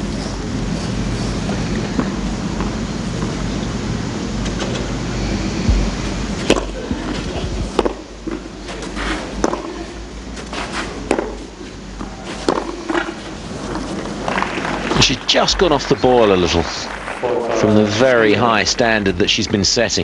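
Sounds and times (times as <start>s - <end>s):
outdoor stadium hiss: 0.0s - 20.0s
tennis ball struck by rackets: 5.7s - 8.4s, 9.4s - 9.8s, 11.0s - 13.2s.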